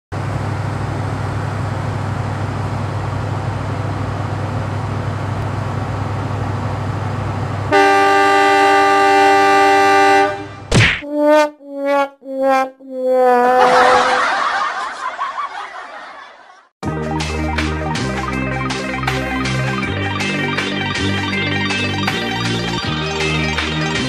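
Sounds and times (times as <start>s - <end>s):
train horn blast: 7.7s - 12.7s, 13.4s - 14.2s.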